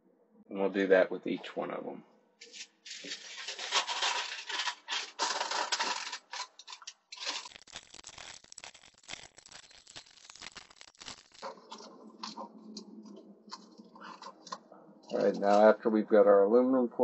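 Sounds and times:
aluminum foil crinkling: 2.4 - 12.9, 13.5 - 15.6.

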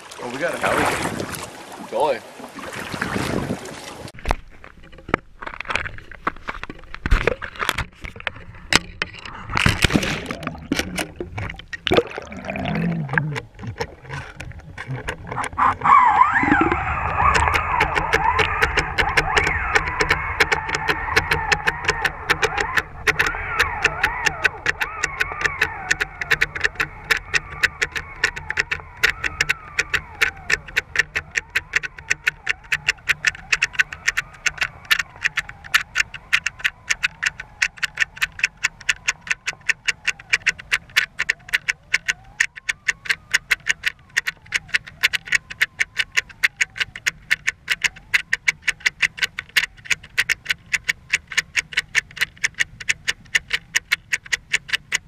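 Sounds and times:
metal swivel clicking underwater: 4.1 - 55.0.

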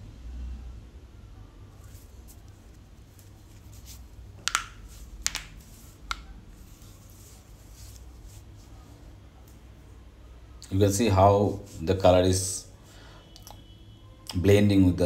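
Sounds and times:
low steady hum: 0.0 - 15.0
hard objects tapping on surface: 4.4 - 6.3.

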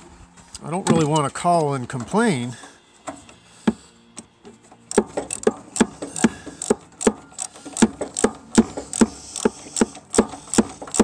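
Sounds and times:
ratchet wrench clicking: 5.3 - 11.0.

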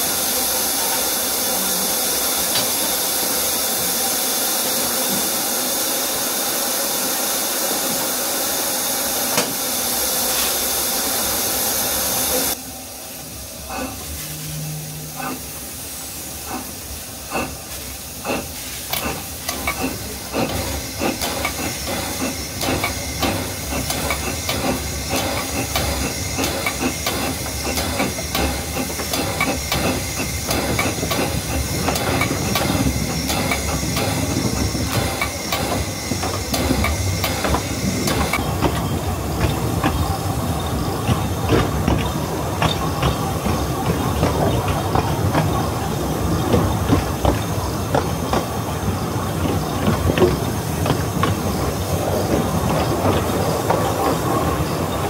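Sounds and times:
steam hissing: 0.0 - 55.0
steam locomotive chuffing: 0.0 - 55.0
carriage wheels clattering on rails: 18.2 - 55.0.

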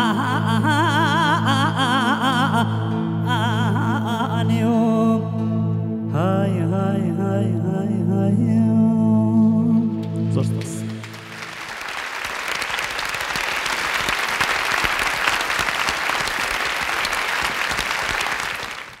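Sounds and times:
audience applauding: 10.4 - 19.0.

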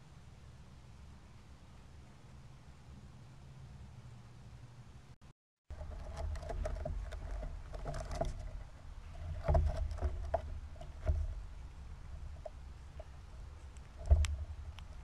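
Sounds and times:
squirrel claws scrabbling: 5.7 - 15.0.

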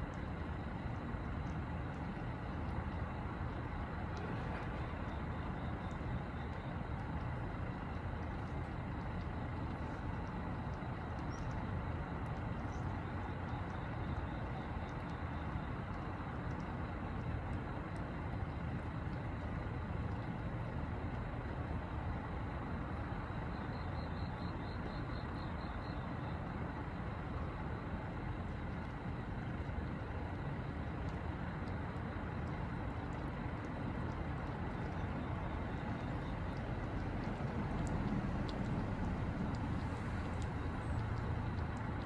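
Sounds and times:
low outdoor rumble: 0.0 - 42.0.

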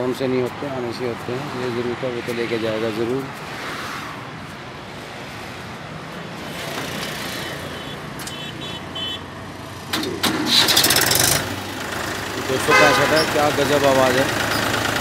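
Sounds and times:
tractor diesel engine running: 9.4 - 15.0.

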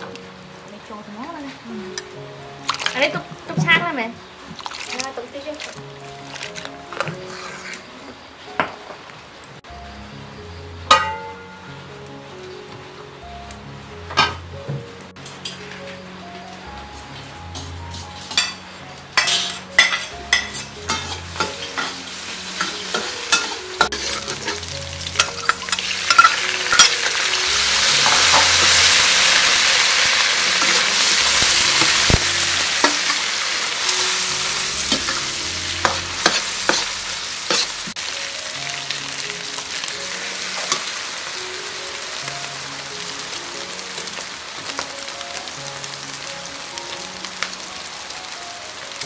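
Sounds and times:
food sizzling in a wok: 0.0 - 49.0
spatula scraping a pan: 6.9 - 7.9, 19.2 - 27.0, 34.8 - 38.0.

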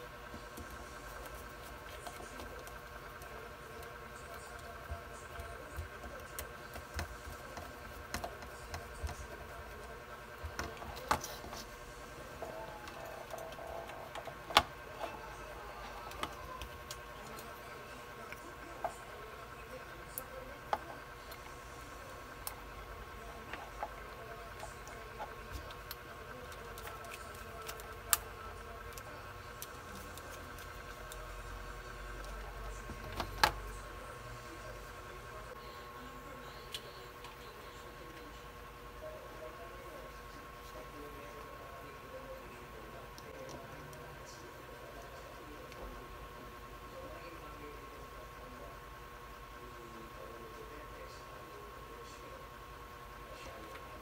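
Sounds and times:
faint steady hum: 0.0 - 54.0
fingers handling wires clicking: 23.3 - 31.2.

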